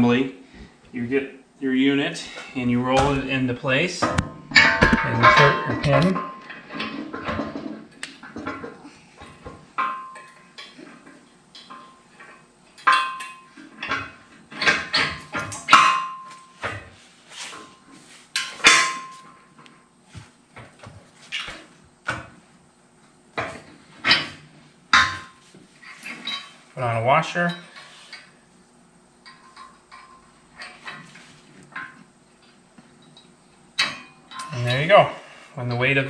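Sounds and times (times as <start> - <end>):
metal clinking against steel post: 4.0 - 7.7, 33.0 - 34.9.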